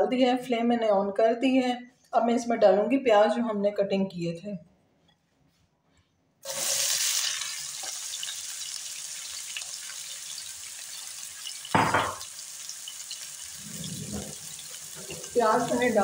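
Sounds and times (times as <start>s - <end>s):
onions sizzling in hot oil: 6.4s - 16.0s.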